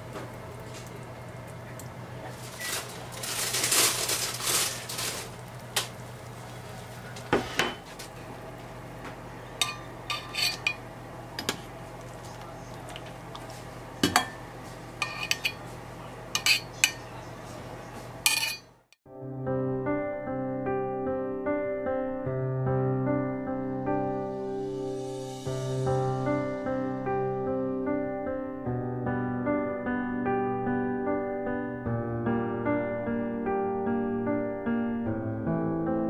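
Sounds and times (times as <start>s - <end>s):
piano music: 7.6s - 11.9s, 19.1s - 36.0s
ladle scraping and clinking on pots: 9.6s - 10.8s, 15.0s - 15.6s, 16.4s - 17.1s, 18.3s - 18.7s.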